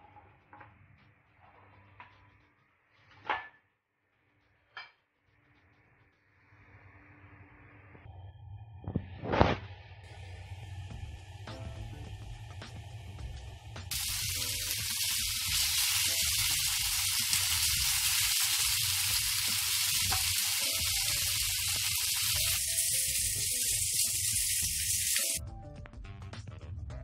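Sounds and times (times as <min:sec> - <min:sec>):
chicken sizzling in hot oil: 0:13.9 - 0:25.4.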